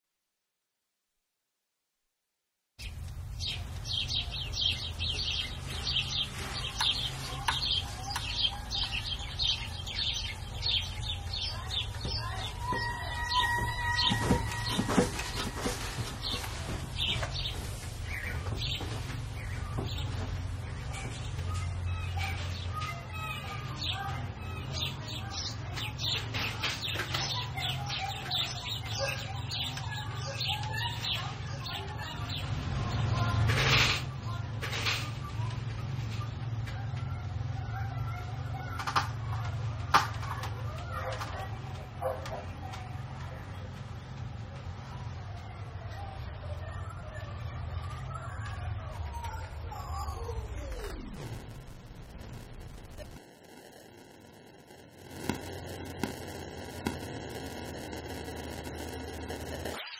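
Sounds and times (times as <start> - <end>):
birds chirping with delay effect: 2.8 - 33.3, 46.0 - 59.9
steady low rumble: 49.5 - 59.8
steady low hum: 49.5 - 59.9.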